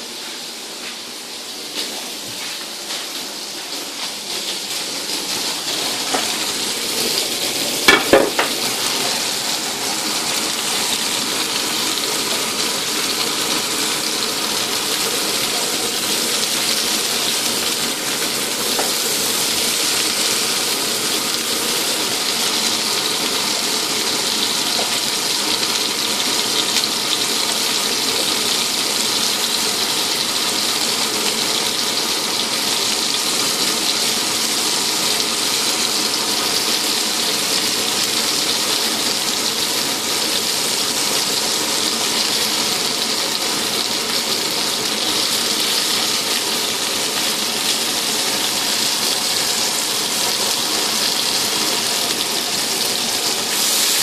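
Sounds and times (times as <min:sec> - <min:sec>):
food sizzling in hot oil: 0:00.0 - 0:54.0.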